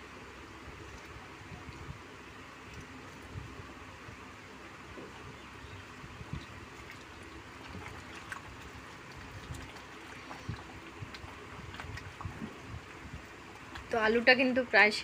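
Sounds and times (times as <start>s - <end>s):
curry simmering and bubbling: 4.9s - 14.0s.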